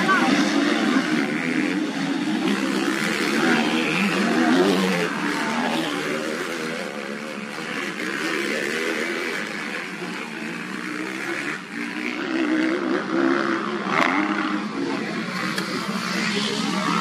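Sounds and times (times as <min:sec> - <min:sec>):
dirt bike engines revving: 0:00.0 - 0:17.0.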